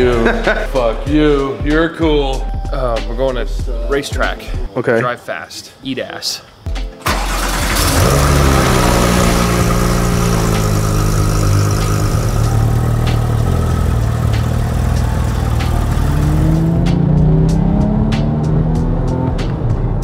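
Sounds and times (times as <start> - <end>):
car engine starting and revving: 7.0 - 20.0.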